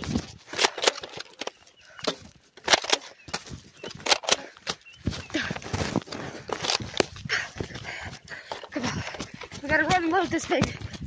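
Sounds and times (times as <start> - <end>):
footsteps running through grass: 3.2 - 11.0.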